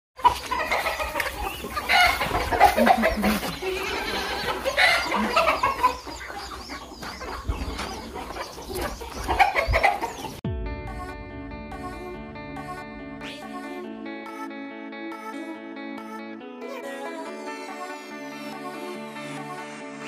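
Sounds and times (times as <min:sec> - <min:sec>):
chickens clucking and squawking: 0:00.2 - 0:10.4.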